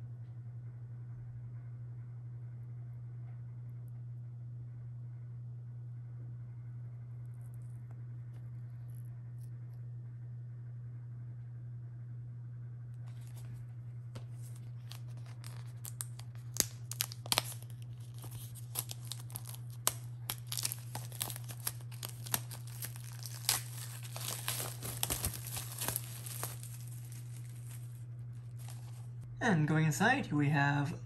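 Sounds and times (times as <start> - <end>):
low hum: 0.0 - 31.0
plastic shrink-wrap crinkling: 13.0 - 29.2.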